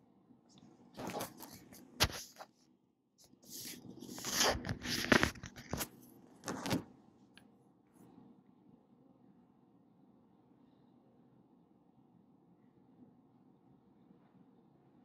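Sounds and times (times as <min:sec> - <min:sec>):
phone being handled: 0:04.2 - 0:06.9.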